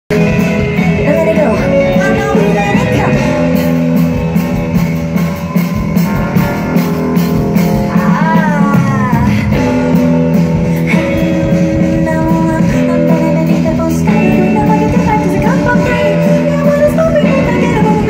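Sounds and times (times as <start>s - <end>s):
live pop band playing: 0.1s - 18.0s
woman singing: 0.8s - 3.5s, 7.7s - 10.1s, 10.7s - 18.0s.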